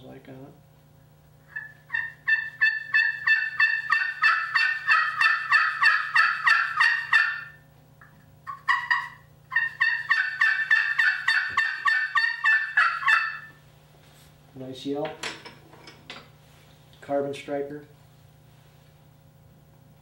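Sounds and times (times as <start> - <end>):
turkey call hen yelps: 1.5 - 7.6, 8.5 - 13.6.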